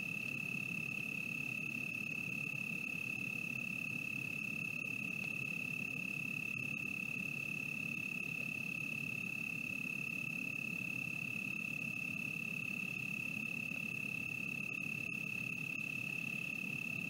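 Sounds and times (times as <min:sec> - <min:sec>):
steady high-pitched tone: 0:13.4 - 0:17.0.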